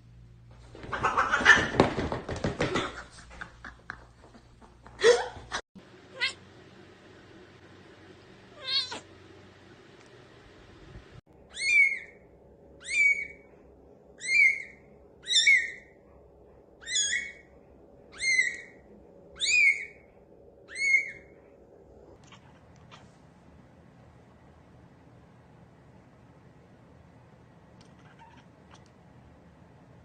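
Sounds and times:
kitten mewing: 0:08.6 - 0:09.0, 0:22.2 - 0:23.2, 0:27.8 - 0:28.9.

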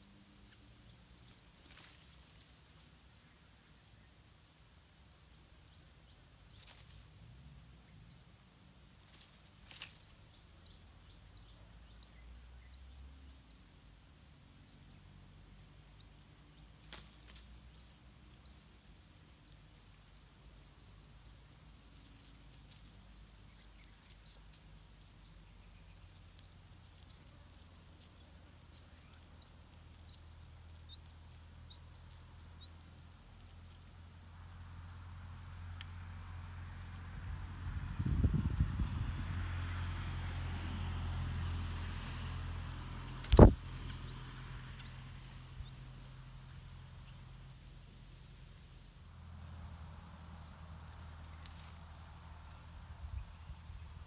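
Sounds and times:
nestlings begging squeaks: 0:00.0 - 0:37.6, 0:43.0 - 0:47.3.

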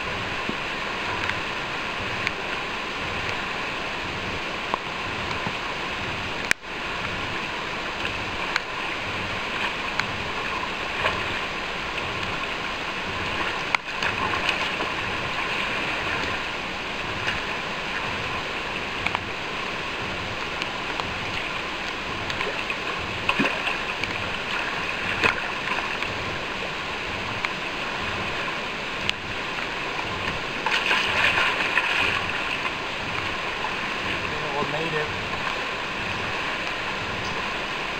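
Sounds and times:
river water rushing over rocks: 0:00.0 - 0:37.9.

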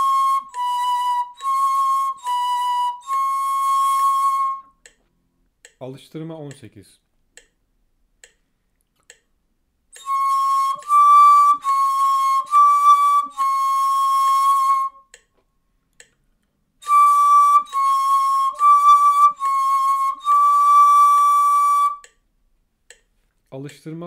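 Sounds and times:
breathy reed flute notes: 0:00.0 - 0:04.9, 0:10.0 - 0:15.2, 0:16.8 - 0:22.1.

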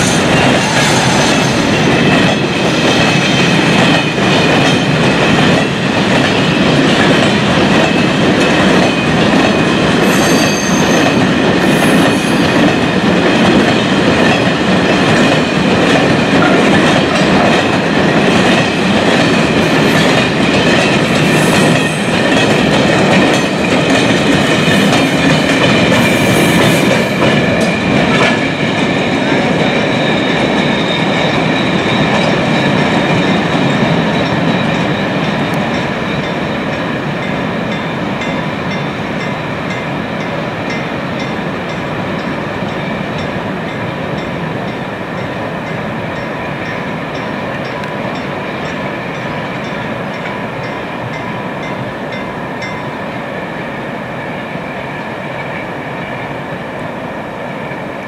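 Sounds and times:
high wheel squeal: 0:00.0 - 0:01.7, 0:10.0 - 0:12.6
train wheels rumbling on rail: 0:00.0 - 0:58.0.

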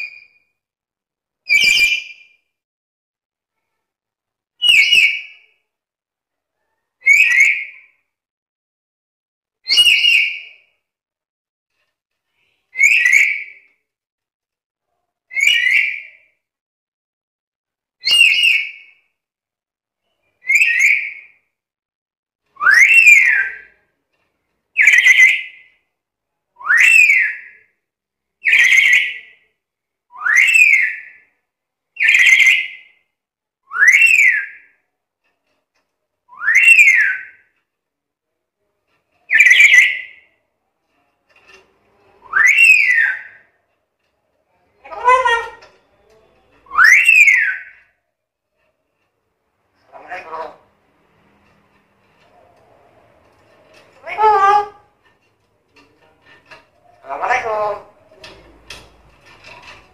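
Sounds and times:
parrot giving shrill calls: 0:42.3 - 0:43.4, 0:44.8 - 0:45.6, 0:46.7 - 0:47.8, 0:49.8 - 0:50.7, 0:54.0 - 0:54.9, 0:57.0 - 0:58.0.

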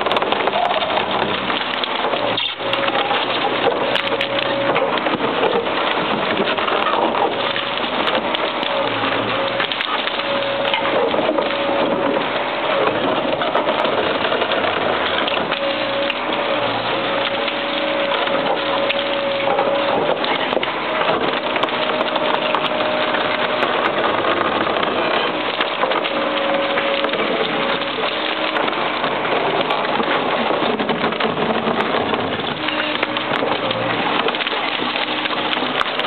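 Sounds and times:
concrete chunks breaking off: 0:00.0 - 0:36.0
concrete cracking and crunching: 0:00.0 - 0:36.0
excavator engine running: 0:00.0 - 0:36.0.

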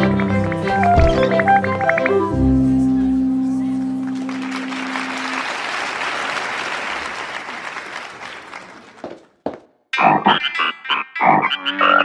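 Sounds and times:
held musical chord: 0:01.3 - 0:05.4
audience applause: 0:04.0 - 0:09.4.

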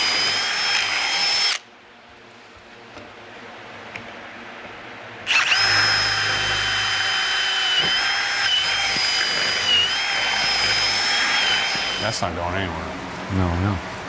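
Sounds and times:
drill boring through metal: 0:00.0 - 0:01.6, 0:05.3 - 0:12.3.

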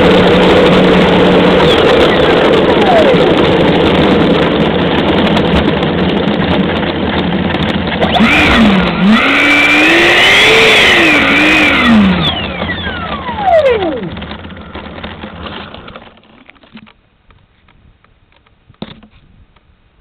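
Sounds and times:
electric ducted fan whine: 0:00.0 - 0:15.9
steady rushing noise: 0:00.0 - 0:18.7.

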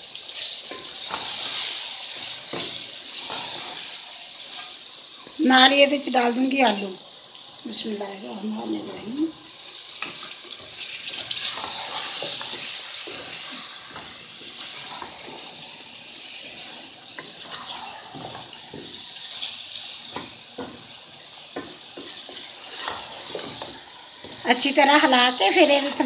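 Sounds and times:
vegetables sizzling in hot oil: 0:00.0 - 0:26.0
wooden spoon scraping metal pot: 0:10.0 - 0:15.6, 0:22.4 - 0:24.6.

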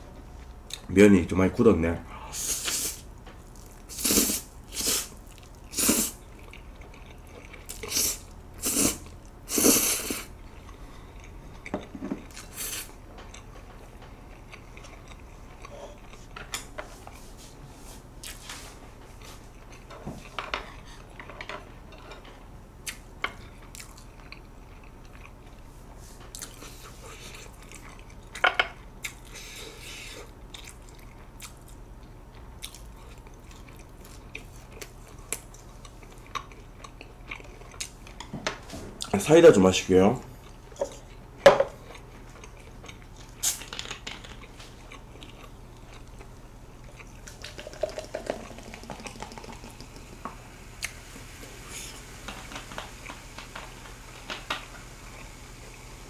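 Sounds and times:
man slurping noodles: 0:03.9 - 0:05.1, 0:07.8 - 0:10.3, 0:47.4 - 0:49.8
chewing with wet mouth clicks: 0:05.2 - 0:07.9, 0:22.8 - 0:25.6, 0:26.3 - 0:26.7, 0:29.0 - 0:29.4, 0:30.5 - 0:38.3, 0:41.8 - 0:50.1.

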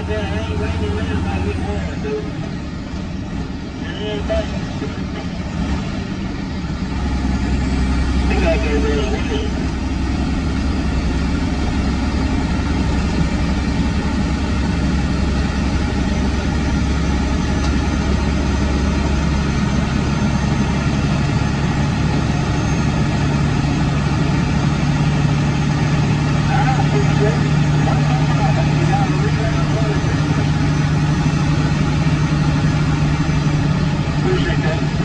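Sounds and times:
diesel truck engine droning: 0:00.0 - 0:35.0
road noise on wet pavement: 0:00.0 - 0:35.0.

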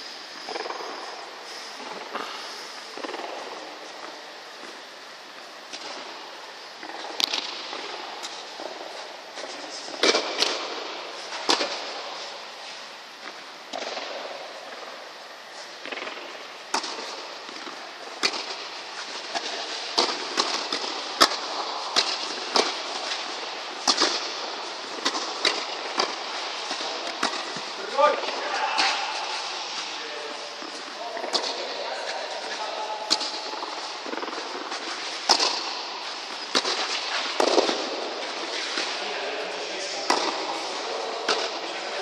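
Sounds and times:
rackets striking tennis ball: 0:00.5 - 0:00.9, 0:06.8 - 0:12.0, 0:13.2 - 0:14.5, 0:15.8 - 0:42.0
tennis ball bouncing: 0:15.8 - 0:27.7, 0:33.1 - 0:38.9, 0:40.1 - 0:41.6.

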